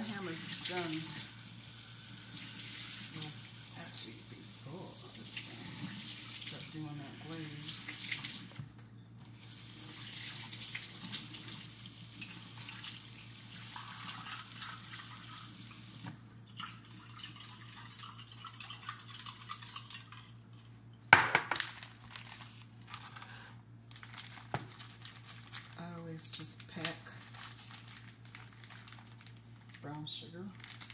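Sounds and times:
water running from a tap: 0:00.0 - 0:08.7, 0:09.4 - 0:20.3.

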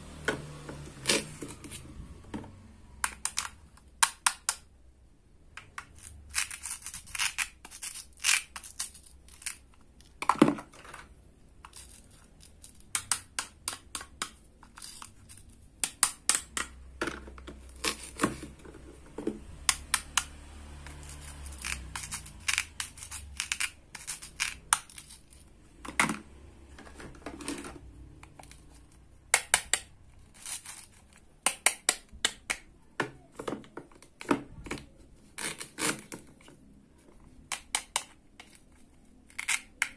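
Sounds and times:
plastic pieces clicking and tapping: 0:03.0 - 0:04.7, 0:05.5 - 0:26.2, 0:27.0 - 0:39.9
velcro rasping apart: 0:06.0 - 0:09.6, 0:20.9 - 0:25.4, 0:35.3 - 0:36.3.

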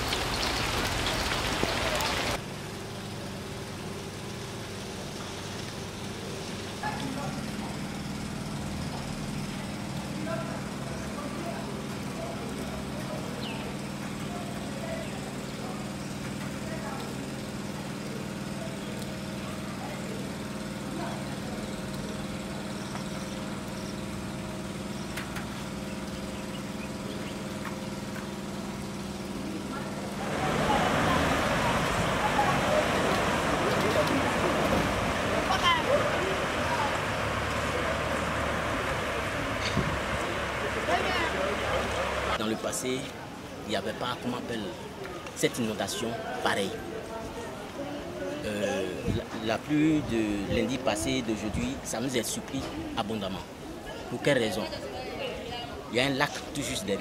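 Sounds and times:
drips and splashes: 0:00.0 - 0:08.3, 0:30.1 - 0:42.4
rain hissing on water: 0:00.0 - 0:42.4
engine idling: 0:00.0 - 0:43.6.

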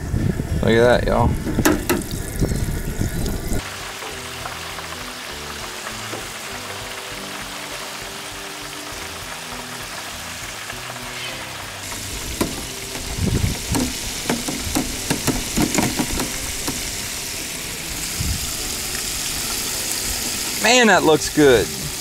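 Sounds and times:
oil sizzling in fryer: 0:01.3 - 0:22.0
sharp knocks and clatters: 0:01.5 - 0:02.2, 0:11.9 - 0:16.9.

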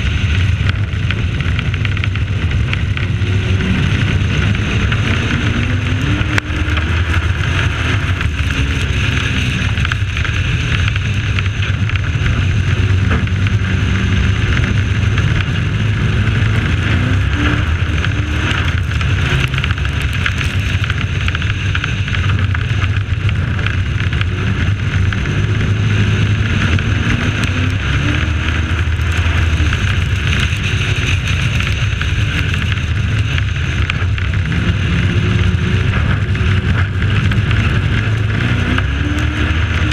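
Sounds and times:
race truck engine: 0:00.0 - 0:39.9
wind and tyre noise: 0:00.0 - 0:39.9.

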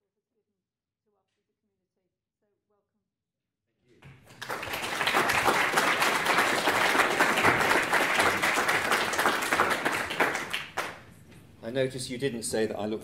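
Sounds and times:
audience applauding: 0:04.1 - 0:11.2.

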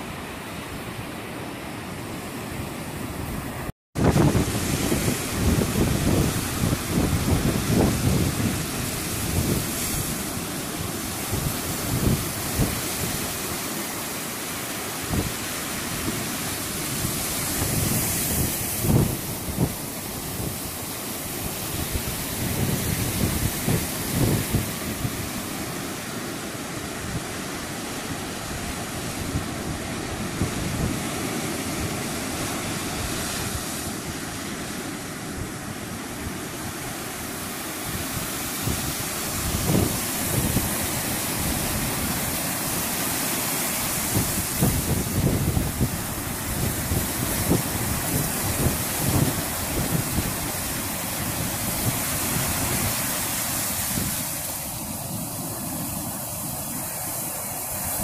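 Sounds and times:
waves breaking on sand: 0:00.0 - 0:58.0
wind gusts on microphone: 0:00.0 - 0:58.0.

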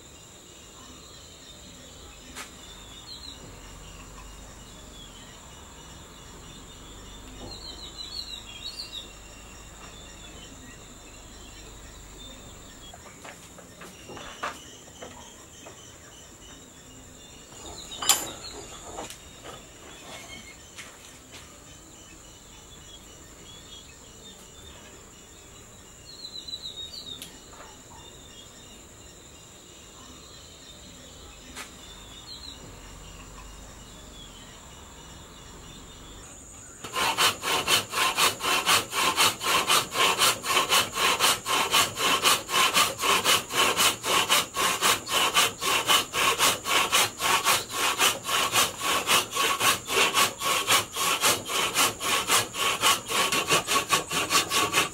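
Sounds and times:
high insect drone: 0:00.0 - 0:54.9
hand saw cutting wood: 0:36.8 - 0:54.9.

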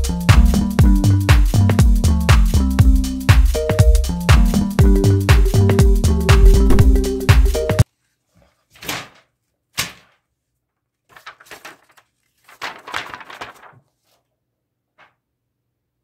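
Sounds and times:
paper rustling and crackling: 0:07.9 - 0:10.3, 0:10.9 - 0:14.3
paper snapping: 0:09.8 - 0:10.2.

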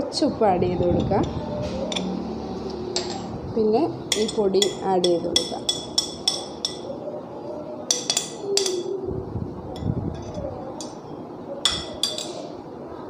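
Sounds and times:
metal spoon clinking on bowl: 0:04.1 - 0:06.9, 0:07.9 - 0:08.9, 0:11.6 - 0:12.5.

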